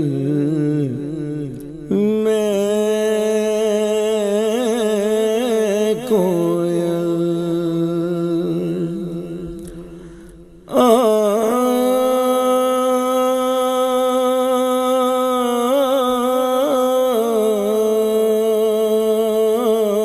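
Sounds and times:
man singing into microphone: 0.0s - 20.0s
breath: 9.6s - 10.7s.

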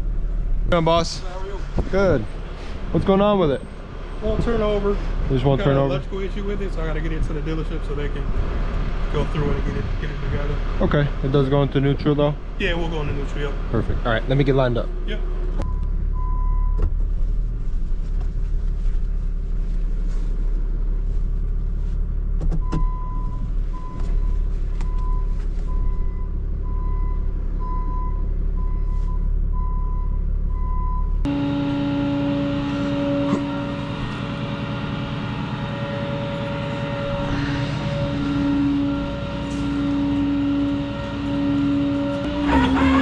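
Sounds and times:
truck engine running: 0.0s - 43.0s
reversing alarm beeping: 22.6s - 43.0s
droning hum: 31.2s - 43.0s.

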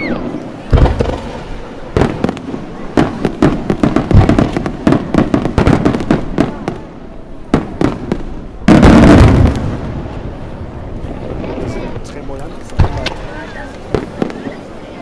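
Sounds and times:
deep firework boom: 0.0s - 6.8s, 7.5s - 12.1s
fireworks bangs and crackling: 0.0s - 15.0s.

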